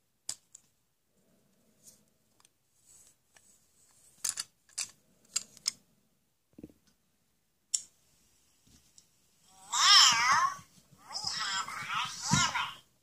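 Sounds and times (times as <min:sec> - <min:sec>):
plastic toy pieces clicking: 0:04.2 - 0:05.8.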